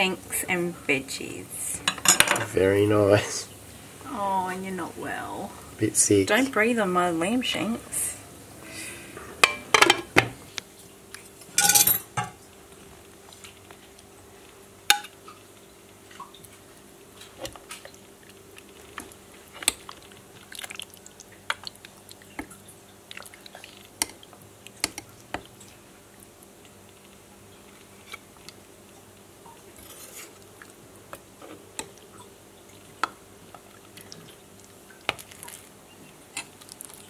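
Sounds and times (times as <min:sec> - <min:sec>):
utensils clanking on ceramic pot: 0:11.6 - 0:12.3.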